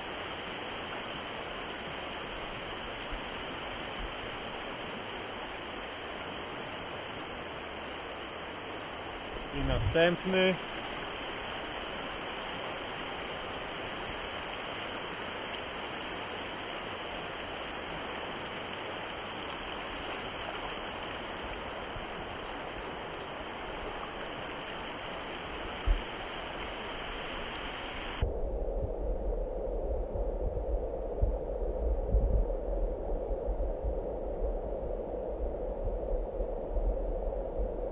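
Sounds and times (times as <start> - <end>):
stream rushing over stones: 0.0 - 28.2
low uneven rumble with knocks: 25.8 - 26.1.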